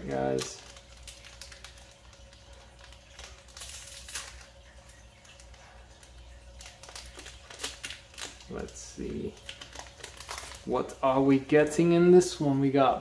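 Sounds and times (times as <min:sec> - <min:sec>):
foil wrapper crinkling: 0:00.0 - 0:12.4.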